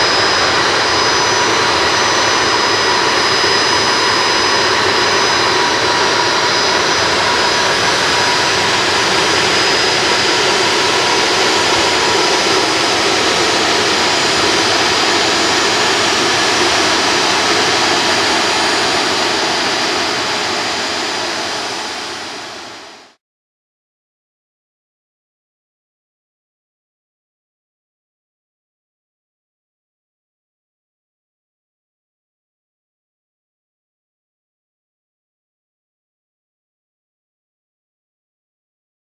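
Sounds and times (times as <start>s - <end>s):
jet engines rushing and whining: 0.0s - 23.2s.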